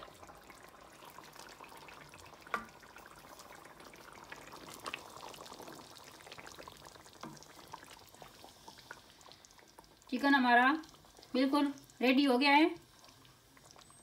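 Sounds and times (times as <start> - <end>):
gravy simmering: 0.0 - 14.0
spatula stirring in pan: 1.9 - 9.9.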